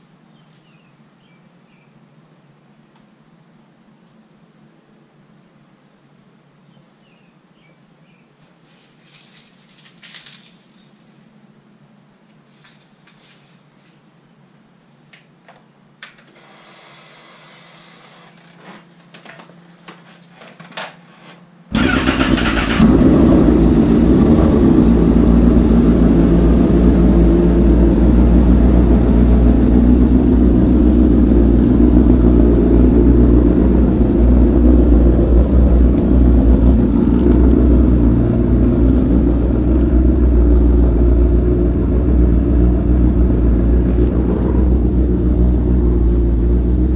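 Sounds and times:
motorcycle engine running: 0:21.7 - 0:46.9.

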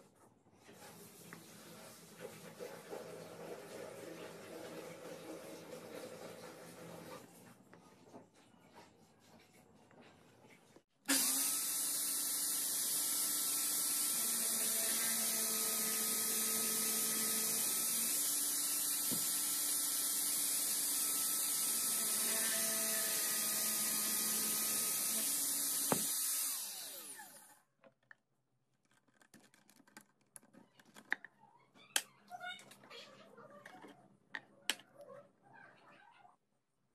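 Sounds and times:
electric drill boring into wood: 0:11.1 - 0:27.6.

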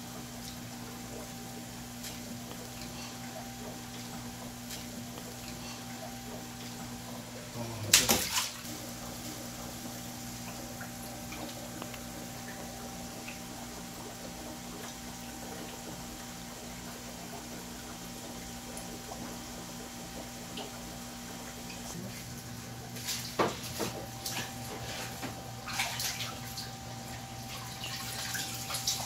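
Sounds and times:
water sloshing and bubbling: 0:00.0 - 0:29.0
loud wet splashing slap: 0:07.9 - 0:08.6.

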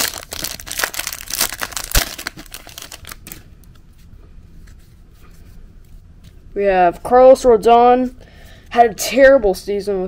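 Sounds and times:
plastic wrapper tearing and crinkling: 0:00.0 - 0:03.4.

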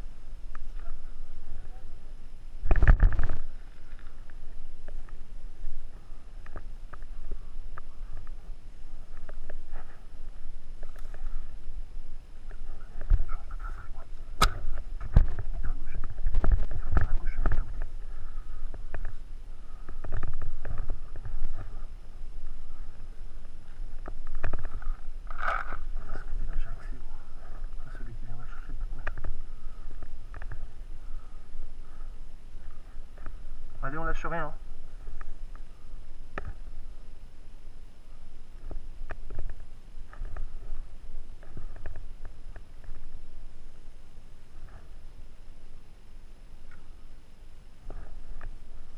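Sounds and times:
wind rumble on microphone: 0:00.0 - 0:33.8.

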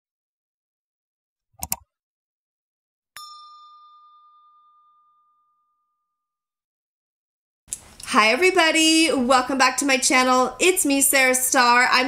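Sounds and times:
sharp clicks: 0:01.6 - 0:01.8
bell-like ding: 0:03.2 - 0:06.5.

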